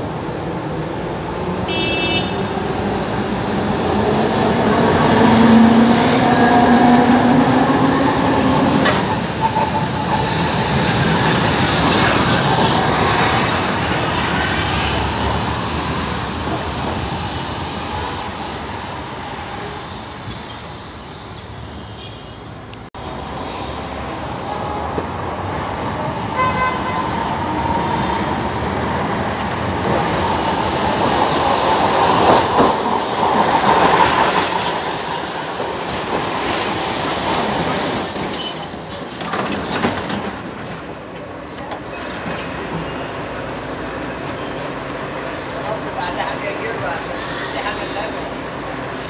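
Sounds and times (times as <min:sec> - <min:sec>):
tram rumbling on rails: 0:00.0 - 0:49.0
tram wheel squeal: 0:04.8 - 0:13.6, 0:16.9 - 0:22.9, 0:30.0 - 0:44.8.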